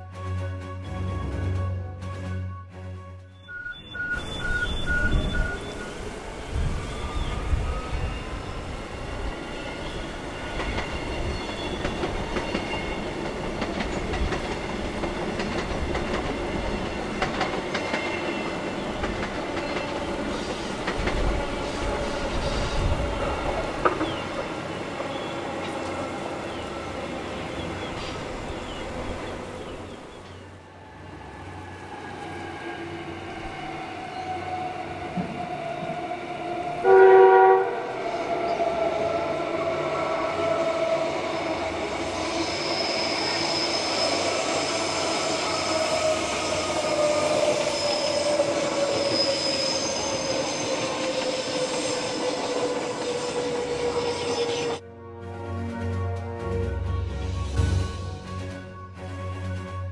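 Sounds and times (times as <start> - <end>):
train running on track: 0.0 - 59.9
high squeal: 3.4 - 13.2, 38.1 - 54.8
train horn blast: 36.8 - 38.6, 53.8 - 59.9.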